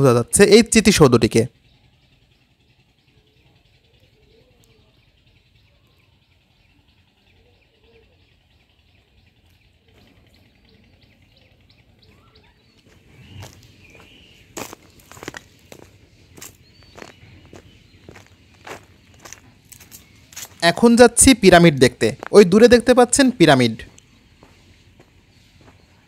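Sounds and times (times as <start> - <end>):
birds chirping: 0.0 - 26.0
insects calling: 0.0 - 26.0
footsteps on ground: 12.7 - 20.7, 22.0 - 22.5, 23.7 - 26.0.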